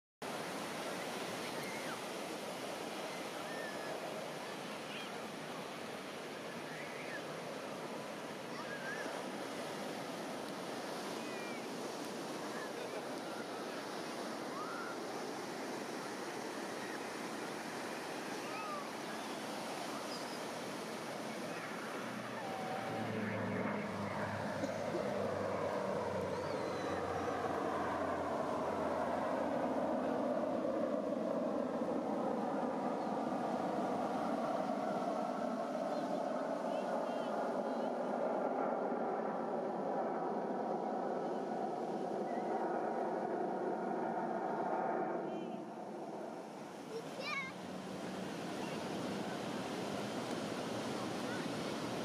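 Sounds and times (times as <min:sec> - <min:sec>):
surf washing on beach: 0:00.3 - 0:52.0
faint voices: 0:03.1 - 0:52.0
aircraft engine drone: 0:20.7 - 0:46.8.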